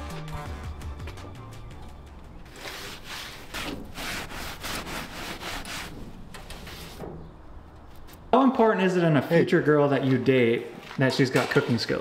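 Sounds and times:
paper towel rasping on grill grate: 0:02.5 - 0:07.2.

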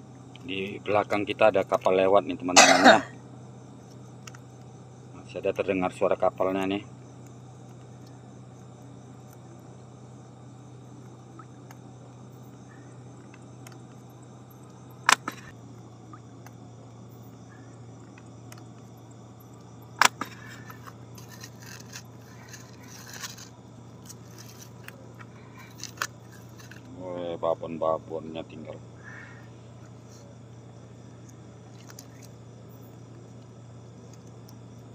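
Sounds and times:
boat engine drone: 0:05.2 - 0:32.8
net rustling and scraping: 0:20.5 - 0:24.9.

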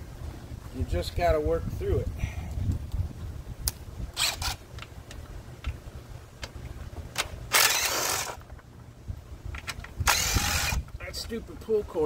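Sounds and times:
cordless drill running: 0:07.5 - 0:08.4, 0:10.1 - 0:10.8.

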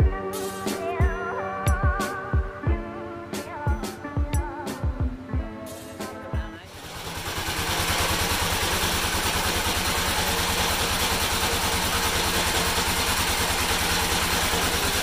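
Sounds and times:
small engine idling: 0:06.7 - 0:15.0.

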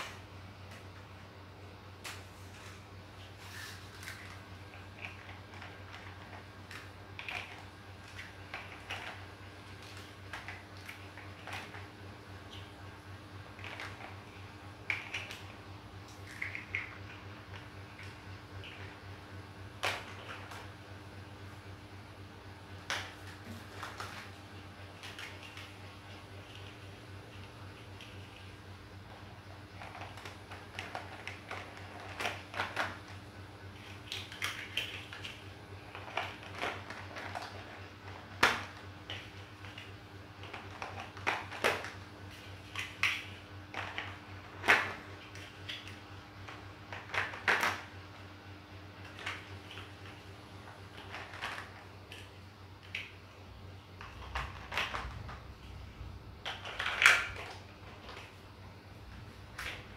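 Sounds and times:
faint steady hum: 0:00.0 - 0:59.9
plastic blocks clicking together: 0:13.5 - 0:19.0, 0:29.7 - 0:33.2, 0:33.8 - 0:42.0, 0:42.7 - 0:47.9, 0:54.0 - 0:55.4, 0:56.4 - 0:58.3
blocks clattering on hard floor: 0:49.1 - 0:52.3, 0:54.0 - 0:55.4.

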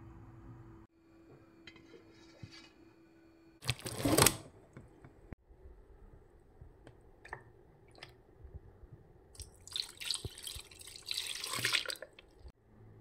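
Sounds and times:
water splashing onto meat in pot: 0:09.4 - 0:12.4.

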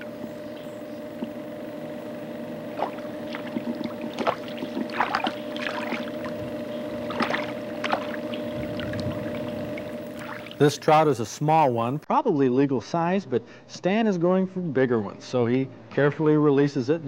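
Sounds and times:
steady low hum: 0:00.0 - 0:17.0
fish thrashing at water surface: 0:02.7 - 0:06.4, 0:07.0 - 0:10.6
water splashing and sloshing: 0:02.7 - 0:10.7.

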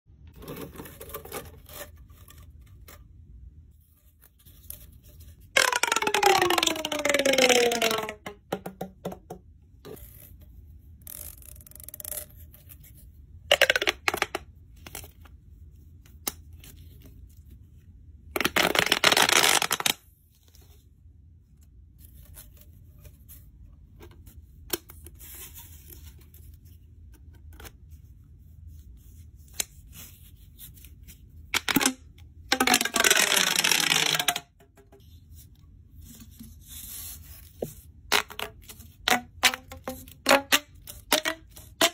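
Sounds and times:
plastic pop tube popping: 0:05.6 - 0:09.5, 0:13.5 - 0:14.4, 0:31.6 - 0:35.0, 0:38.1 - 0:41.9.

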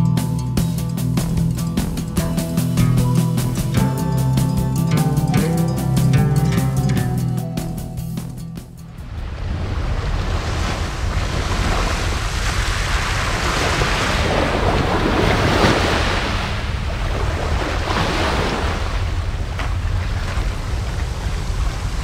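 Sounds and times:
wind rumbling on microphone: 0:08.9 - 0:22.0
sea waves washing onto beach: 0:09.0 - 0:22.0.

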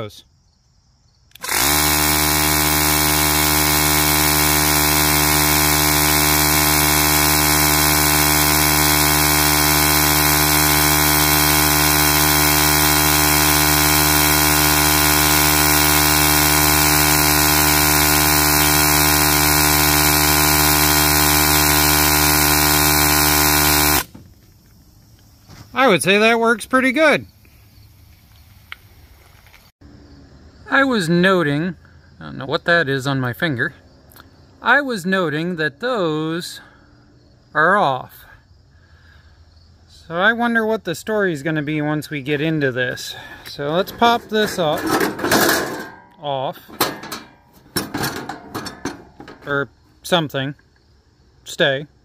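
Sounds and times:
electric air pump humming: 0:01.4 - 0:24.1.

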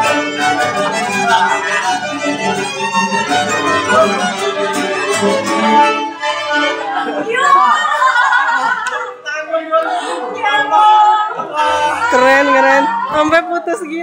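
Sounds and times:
classical guitar strumming: 0:00.0 - 0:07.3
cello: 0:00.0 - 0:07.4
violins playing folk tune: 0:00.0 - 0:10.7, 0:11.5 - 0:14.0.

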